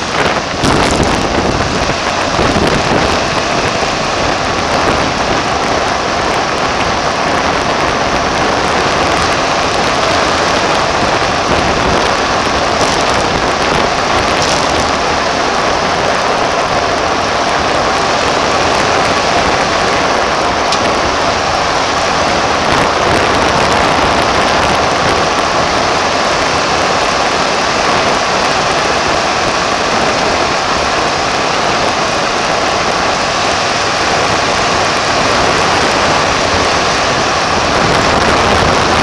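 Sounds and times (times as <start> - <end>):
tyre noise: 0.0 - 28.1
wind noise on microphone: 0.0 - 39.0.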